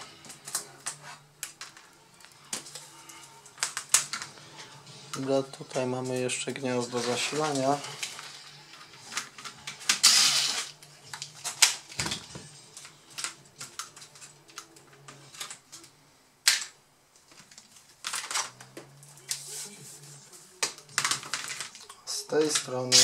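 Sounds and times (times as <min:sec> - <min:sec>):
electric screwdriver bursts: 0:10.0 - 0:10.7.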